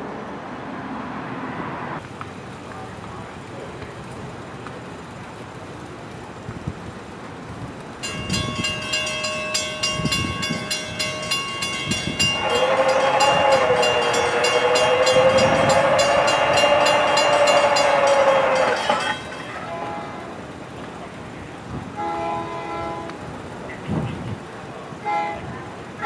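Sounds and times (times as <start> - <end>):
crossing bell ringing: 8.0 - 20.6
train air horn blast: 12.1 - 20.4, 22.0 - 23.2, 25.0 - 26.0.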